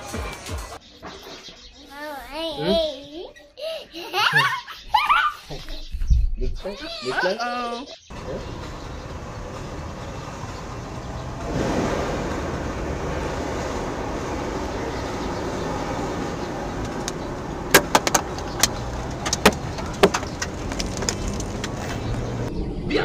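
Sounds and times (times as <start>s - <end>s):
tyre and road noise: 8.1s - 22.8s.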